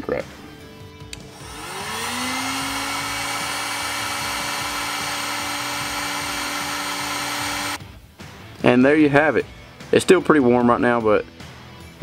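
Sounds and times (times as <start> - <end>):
heat gun switch click: 1.1 - 2.0
heat gun fan whining: 1.1 - 7.8.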